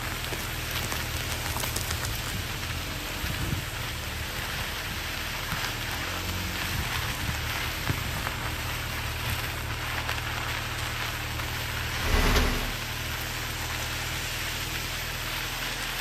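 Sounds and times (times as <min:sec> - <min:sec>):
tyres crunching on gravel: 0:00.0 - 0:03.4
low road rumble: 0:00.0 - 0:16.0
brief rush: 0:11.9 - 0:12.9.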